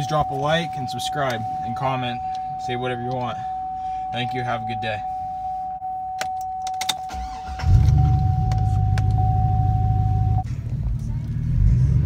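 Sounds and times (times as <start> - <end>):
steady high beep: 0.0 - 6.6
truck engine cranking and idling: 7.1 - 12.0.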